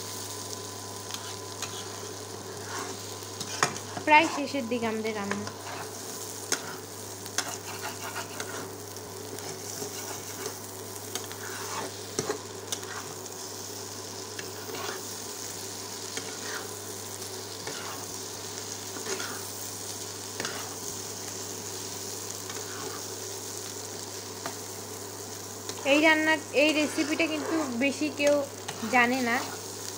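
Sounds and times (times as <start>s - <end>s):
food sizzling in oil: 0.0s - 29.9s
metal spatula scraping pan: 7.4s - 8.7s, 11.3s - 13.2s, 14.6s - 15.0s, 26.7s - 27.8s.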